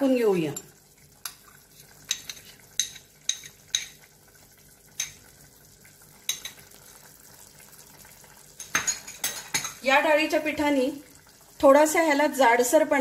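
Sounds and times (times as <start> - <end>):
curry simmering in a pot: 0.0 - 13.0
utensil clinking on cookware: 0.5 - 4.0, 6.3 - 6.6, 8.6 - 9.8.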